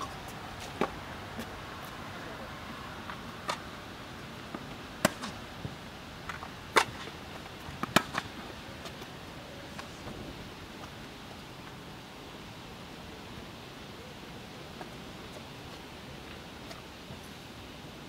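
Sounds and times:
steady background hiss: 0.0s - 18.0s
rackets striking tennis ball: 5.0s - 5.4s, 6.3s - 7.1s, 7.8s - 8.4s.

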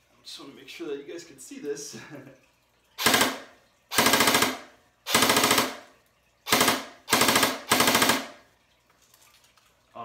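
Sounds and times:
airsoft rifle firing bursts: 3.0s - 5.9s, 6.5s - 8.4s.

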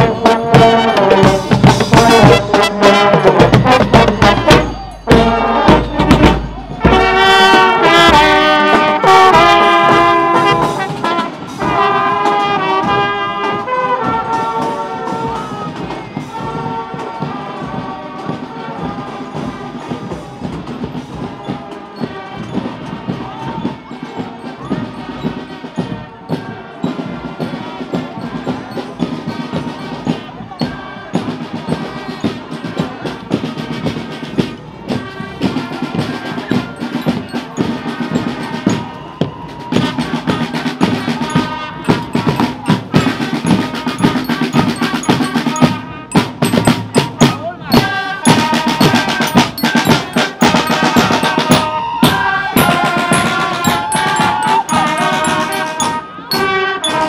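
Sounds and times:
snare drum beating: 0.0s - 17.3s, 29.0s - 57.0s
parade band playing: 0.0s - 57.0s.

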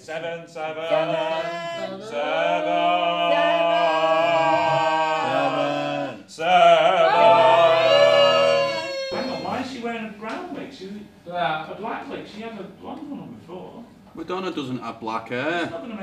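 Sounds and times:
voices singing sustained notes: 0.0s - 9.6s.

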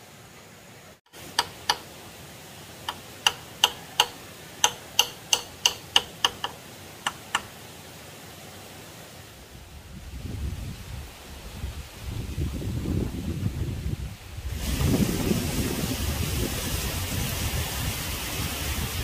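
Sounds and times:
hammer striking nails: 1.2s - 1.9s, 2.9s - 7.5s.

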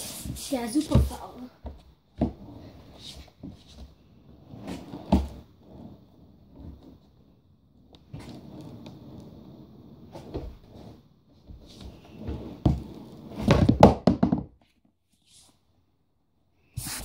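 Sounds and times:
skateboard wheels rolling on wood: 0.0s - 14.5s
board and feet thumping floor: 0.2s - 3.9s, 4.5s - 5.4s, 10.1s - 10.8s, 11.4s - 14.7s.

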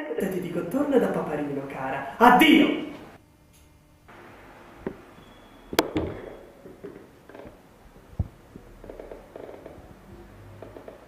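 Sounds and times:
arm thumping on desk: 5.7s - 7.6s.

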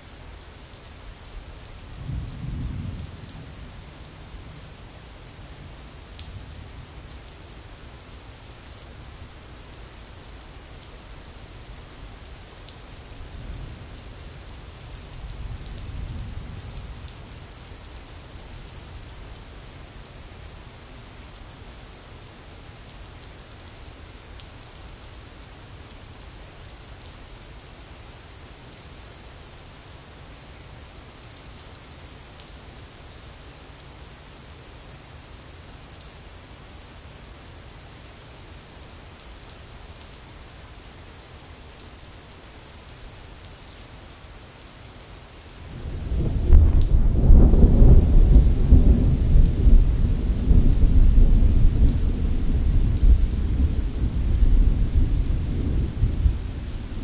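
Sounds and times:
rainfall hiss: 0.0s - 57.0s
thunder rumbling: 45.8s - 57.0s.

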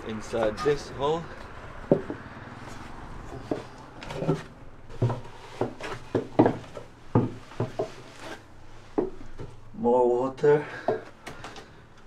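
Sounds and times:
footsteps on boat steps: 1.3s - 9.6s.

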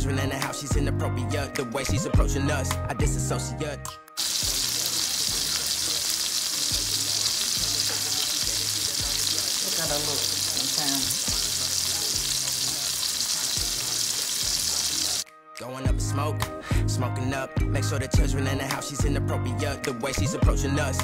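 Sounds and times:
hip-hop music: 0.0s - 21.0s
food sizzling in a pan: 4.2s - 15.2s.

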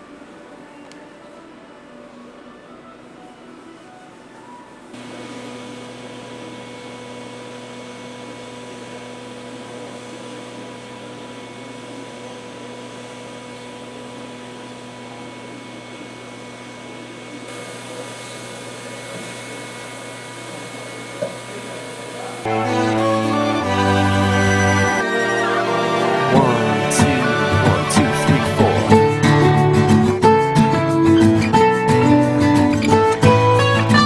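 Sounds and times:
electric motor hum with whine: 5.0s - 25.3s.

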